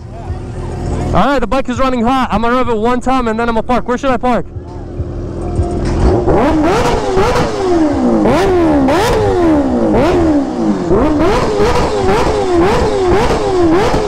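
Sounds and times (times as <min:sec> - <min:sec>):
motorcycle engine revving: 0:04.8 - 0:14.0
exhaust cracks: 0:05.4 - 0:14.0.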